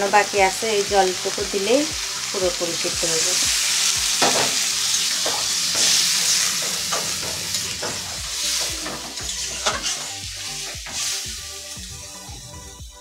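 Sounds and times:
potatoes sizzling in hot oil: 0:00.0 - 0:13.0
metal spatula scraping a pan: 0:04.1 - 0:11.2.

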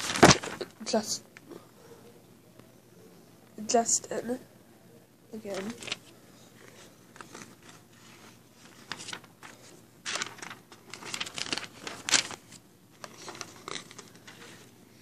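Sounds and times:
rustling and crinkling of items: 0:00.0 - 0:01.2, 0:05.4 - 0:15.0.

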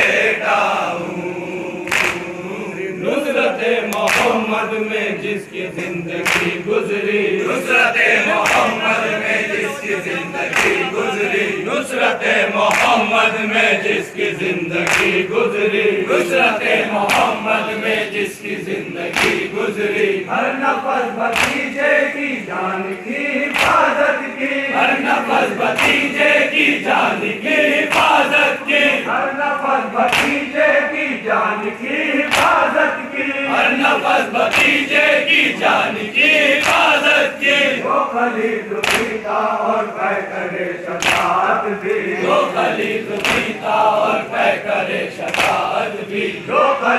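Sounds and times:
crowd of men chanting: 0:00.0 - 0:46.9
hands slapping chests: 0:01.8 - 0:02.3, 0:03.9 - 0:04.4, 0:05.8 - 0:06.6, 0:08.4 - 0:08.8, 0:10.5 - 0:11.0, 0:12.6 - 0:13.0, 0:14.8 - 0:15.2, 0:17.0 - 0:17.4, 0:19.1 - 0:19.5, 0:21.3 - 0:21.7, 0:23.5 - 0:23.9, 0:25.7 - 0:26.1, 0:27.9 - 0:28.4, 0:30.1 - 0:30.5, 0:32.3 - 0:32.6, 0:34.4 - 0:34.8, 0:36.6 - 0:37.0, 0:38.8 - 0:39.2, 0:41.0 - 0:42.0, 0:43.1 - 0:43.6, 0:45.2 - 0:45.8.

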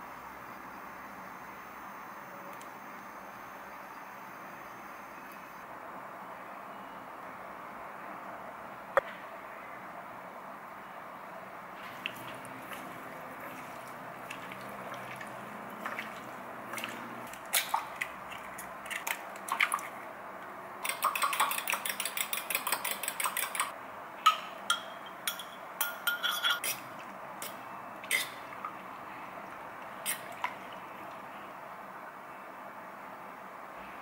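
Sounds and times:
chopsticks clicking against glass bowl: 0:20.8 - 0:23.7.

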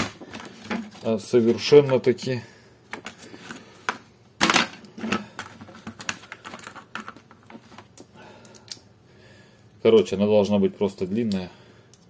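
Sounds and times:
hand tools and plastic clicking: 0:02.9 - 0:08.8.

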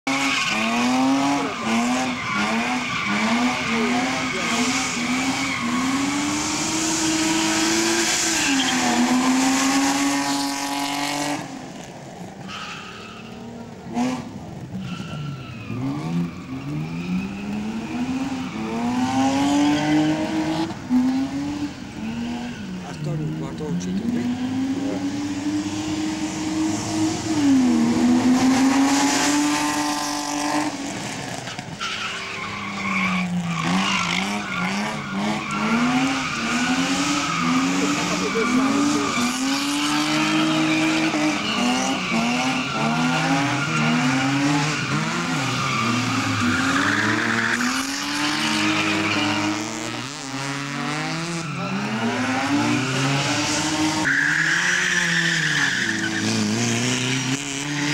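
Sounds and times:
car engine revving: 0:00.0 - 0:12.5, 0:13.3 - 0:57.9
tyres squealing: 0:31.8 - 0:50.0, 0:51.2 - 0:57.9.

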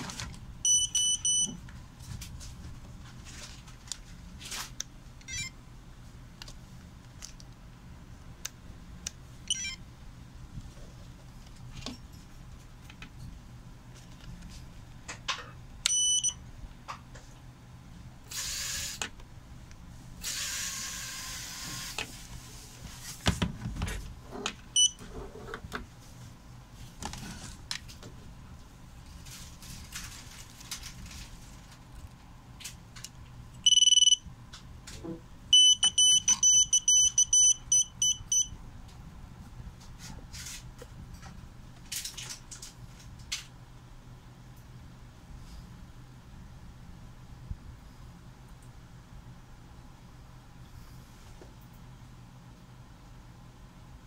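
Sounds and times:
high electronic beeps: 0:33.6 - 0:34.2, 0:35.6 - 0:38.5.

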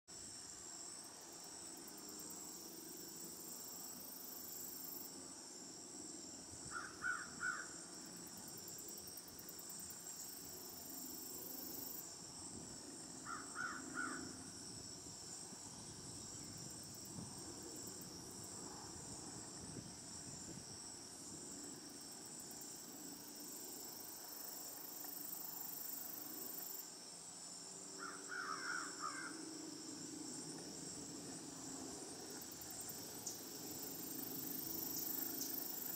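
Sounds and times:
crow cawing: 0:06.7 - 0:07.7, 0:13.3 - 0:14.3, 0:28.0 - 0:29.4
high-pitched insect drone: 0:31.6 - 0:35.9.

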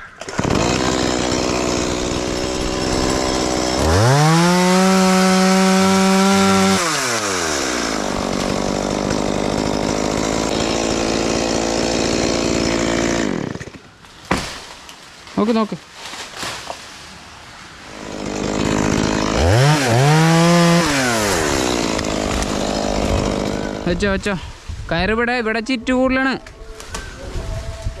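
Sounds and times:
chainsaw running and revving: 0:00.2 - 0:13.8, 0:17.9 - 0:24.2.

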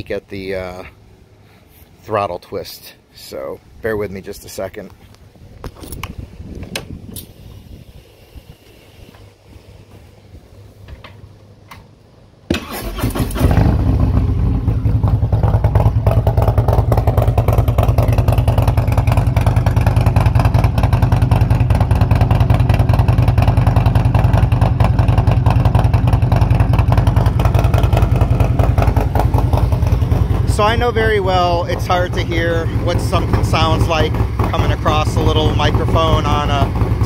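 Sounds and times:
motorcycle engine idling: 0:13.2 - 0:37.0.

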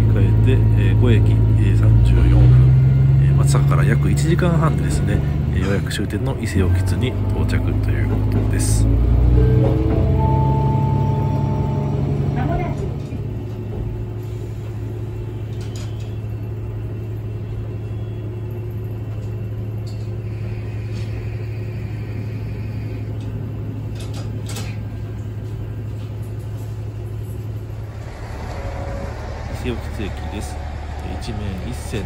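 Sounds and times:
diesel engine idling: 0:25.0 - 0:32.0.

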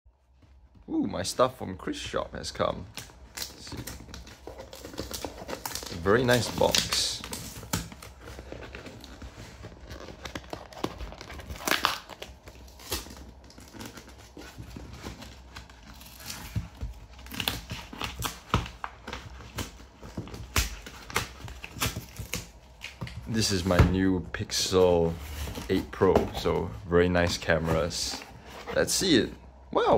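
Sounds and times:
packing tape peeling and tearing: 0:02.9 - 0:23.5.

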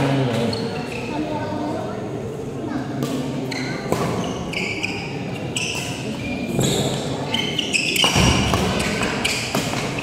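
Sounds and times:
shoes squeaking on court floor: 0:00.4 - 0:01.3, 0:03.4 - 0:10.0
racket hitting shuttlecock: 0:02.9 - 0:04.5, 0:07.9 - 0:10.0.

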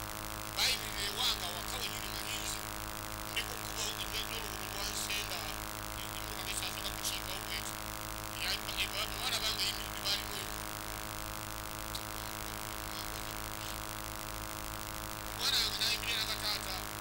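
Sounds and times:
electrical hum: 0:00.0 - 0:17.0
man speaking through loudspeaker: 0:00.6 - 0:02.6, 0:03.3 - 0:07.8, 0:08.4 - 0:10.6, 0:15.4 - 0:16.9.

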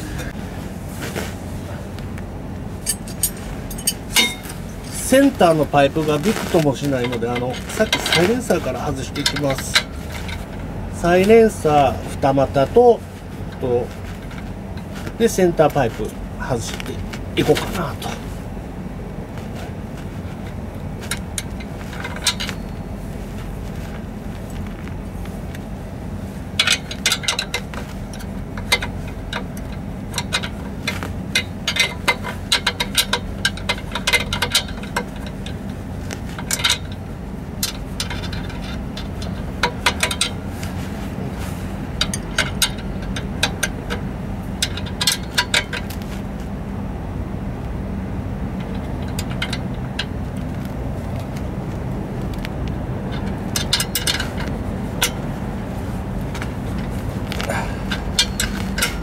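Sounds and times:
low hum: 0:00.0 - 0:59.0
ratchet clicking on metal: 0:26.6 - 0:35.8, 0:37.6 - 0:40.4, 0:56.4 - 0:59.0.

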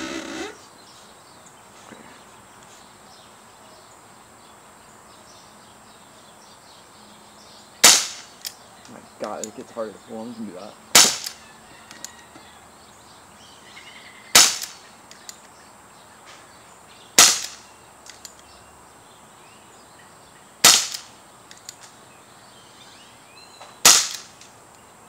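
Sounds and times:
pellet revolver shots: 0:07.8 - 0:08.3, 0:10.9 - 0:11.4, 0:14.3 - 0:14.8, 0:17.2 - 0:17.6, 0:20.6 - 0:21.1, 0:23.8 - 0:24.4
faint clicks: 0:18.0 - 0:18.5, 0:21.5 - 0:22.0.

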